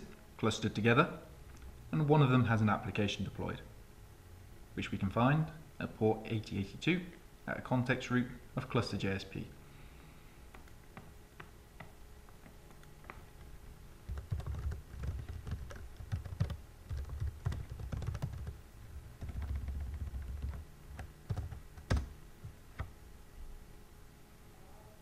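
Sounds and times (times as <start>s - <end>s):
keyboard typing: 14.1s - 18.6s, 19.2s - 22.9s.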